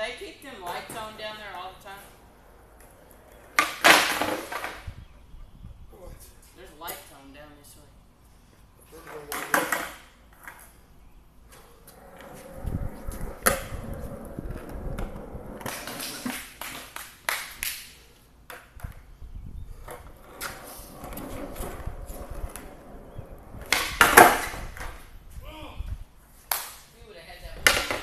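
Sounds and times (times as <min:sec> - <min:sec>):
skateboard wheels rolling on concrete: 0:00.0 - 0:28.0
skateboard clacks: 0:02.7 - 0:04.9, 0:11.9 - 0:19.0, 0:19.8 - 0:25.0, 0:27.6 - 0:28.0.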